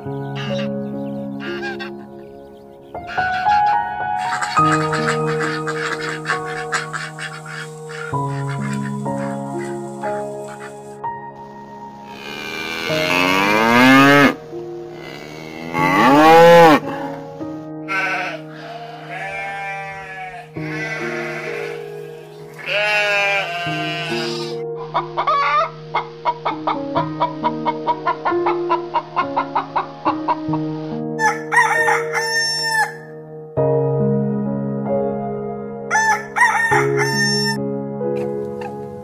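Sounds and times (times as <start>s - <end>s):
background music: 0.0s - 39.0s
sheep bleating: 17.8s - 24.6s
loud long animal call: 17.9s - 24.6s
rooster crowing: 31.2s - 33.1s, 35.9s - 37.6s.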